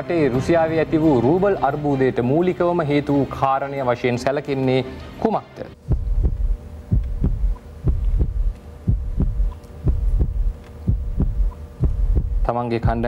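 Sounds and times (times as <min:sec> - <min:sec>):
steady hum: 0:05.7 - 0:13.0
heartbeat-like double thump: 0:05.8 - 0:12.5.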